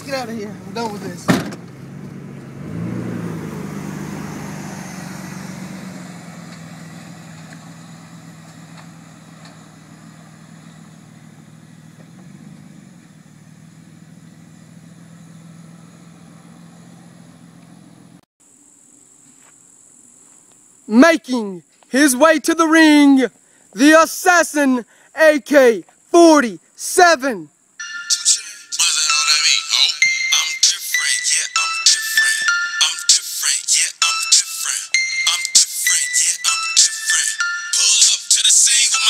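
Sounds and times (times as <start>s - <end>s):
car engine revving: 0.0s - 18.2s.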